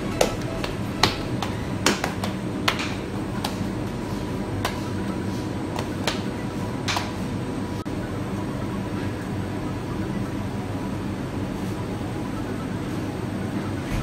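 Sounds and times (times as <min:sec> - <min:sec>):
hands slapping dough: 0:00.0 - 0:07.2
low hum: 0:00.0 - 0:14.0.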